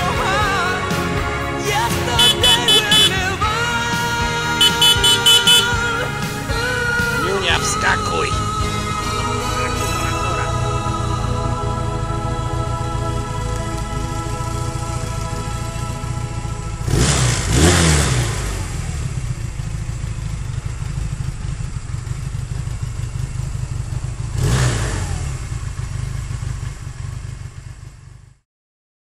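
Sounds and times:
motorcycle engine idling: 1.6s - 28.4s
motorcycle throttle blips: 2.1s - 3.5s, 4.6s - 6.0s, 12.9s - 28.2s.

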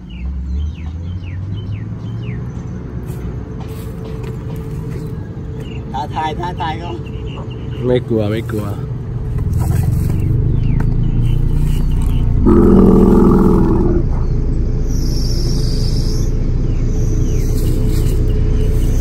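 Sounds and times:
vehicle engine idling: 7.1s - 19.0s.

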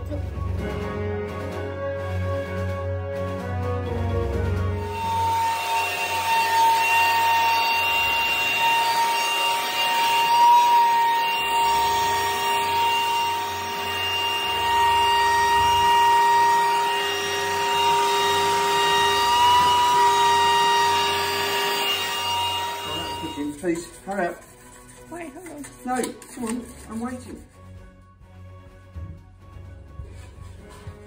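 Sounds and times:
vacuum cleaner whining: 4.8s - 23.9s.

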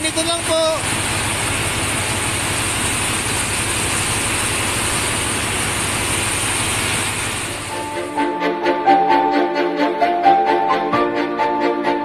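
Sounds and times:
continuous machinery hiss: 0.0s - 8.2s
engine room low hum: 0.0s - 8.3s.

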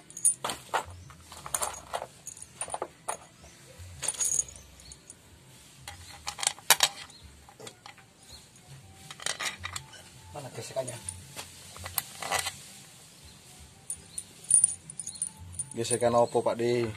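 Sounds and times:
metallic clinks of hand tools: 4.0s - 5.2s, 13.9s - 16.6s.

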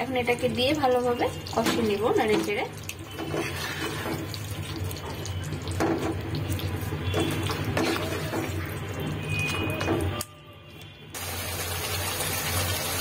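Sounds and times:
spatula stirring: 1.2s - 10.2s
chicken sizzling in a pan: 11.2s - 13.0s.

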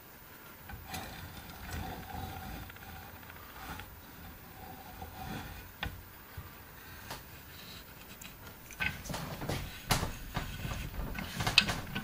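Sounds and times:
sheet metal scraping: 0.7s - 6.0s.

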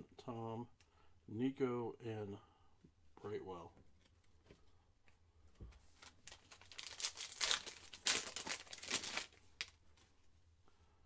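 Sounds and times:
foil wrapper tearing and crinkling: 6.1s - 9.8s.

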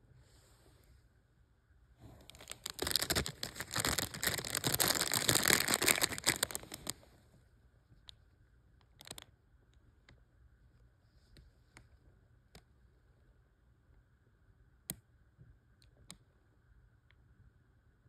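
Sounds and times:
plastic bag crinkling: 2.2s - 7.0s.

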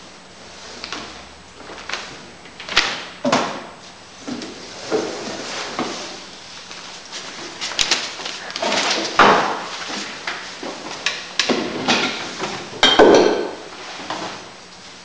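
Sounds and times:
knocks and clatters of objects: 7.6s - 13.6s.

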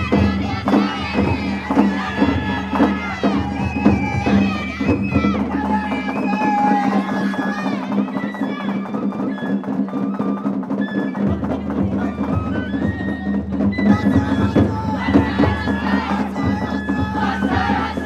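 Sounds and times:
sharp clicking percussion: 0.0s - 12.2s
bamboo flute melody: 0.0s - 18.0s
taiko drums: 0.0s - 18.0s.

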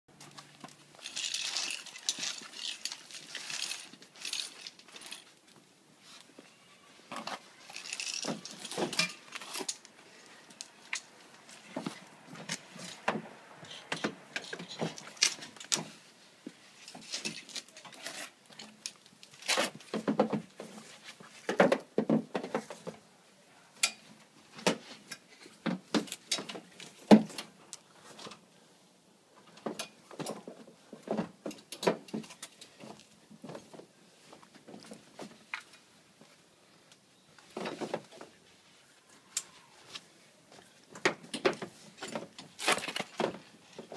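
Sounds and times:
snow chain links clinking: 1.0s - 5.4s, 7.6s - 9.8s.

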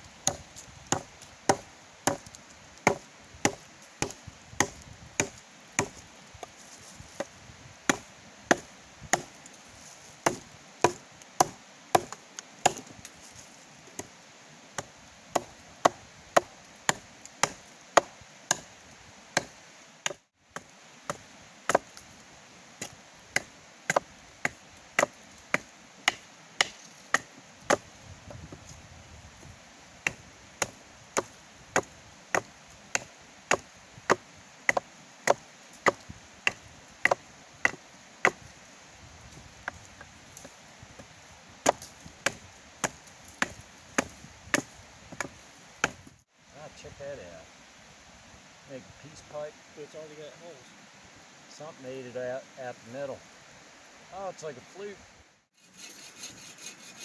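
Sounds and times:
wood chopping strikes: 0.2s - 6.6s, 7.9s - 9.4s, 10.2s - 12.9s, 14.8s - 18.7s, 19.4s - 22.0s, 22.8s - 28.6s, 30.0s - 38.5s, 40.4s - 46.0s.

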